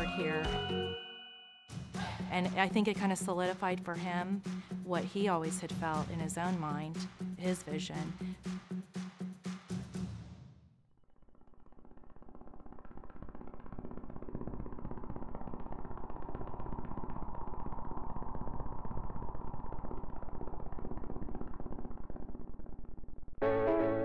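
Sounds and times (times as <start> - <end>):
piano music: 0.0 - 1.3, 23.4 - 24.0.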